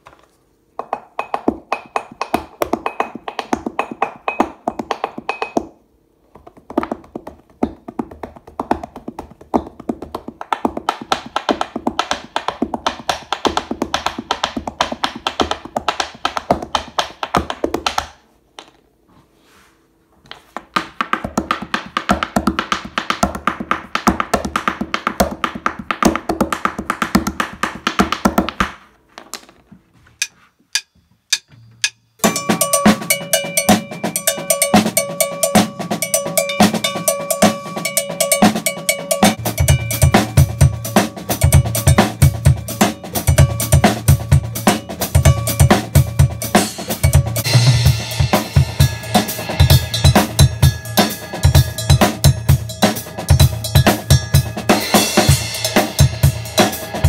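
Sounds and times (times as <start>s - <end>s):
hands drumming on wooden table: 0.8s - 18.7s, 20.3s - 29.5s.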